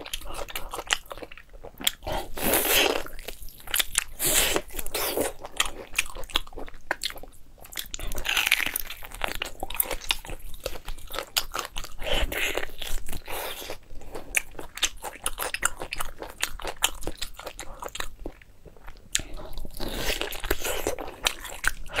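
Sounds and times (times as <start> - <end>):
person chewing meat: 0.0 - 22.0.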